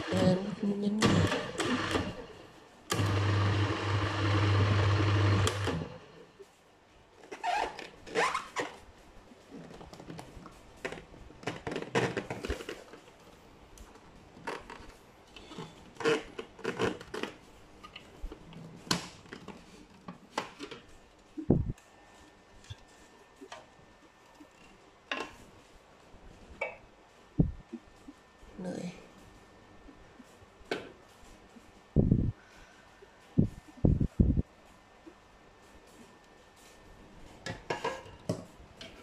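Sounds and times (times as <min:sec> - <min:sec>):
food processor motor whirring: 0:01.1 - 0:02.2, 0:02.9 - 0:06.2.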